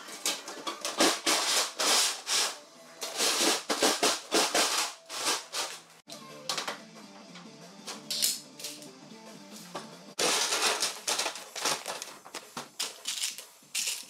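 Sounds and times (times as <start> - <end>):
metal sheet rattling and scraping: 0.0 - 5.9, 10.2 - 14.0
soft background music: 0.0 - 14.0.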